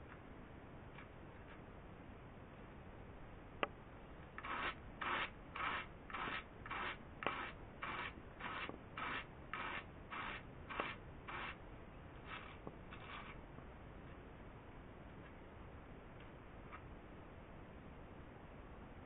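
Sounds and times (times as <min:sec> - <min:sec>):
wool cards scratching: 0:04.4 - 0:11.6, 0:12.3 - 0:13.4.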